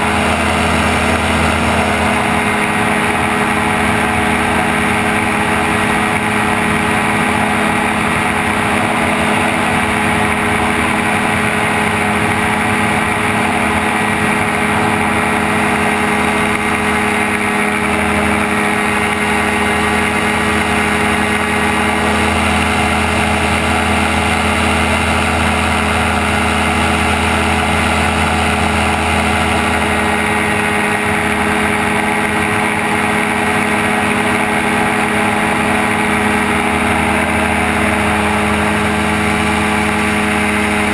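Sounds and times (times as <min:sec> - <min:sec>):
deeper low engine note: 0:00.0 - 0:40.9
gyrocopter engine drone: 0:00.0 - 0:40.9.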